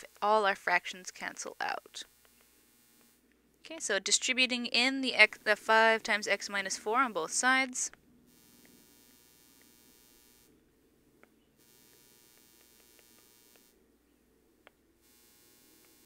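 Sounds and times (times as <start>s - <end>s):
microphone hiss and hum: 0.0s - 16.0s
faint ticks: 2.1s - 3.2s, 8.5s - 10.5s, 11.7s - 13.7s, 14.6s - 16.0s.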